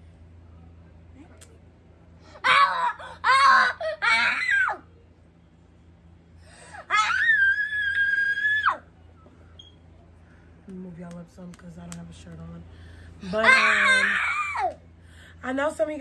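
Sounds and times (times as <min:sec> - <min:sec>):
child squealing: 0:02.4 - 0:04.8, 0:06.9 - 0:08.8, 0:13.4 - 0:14.8.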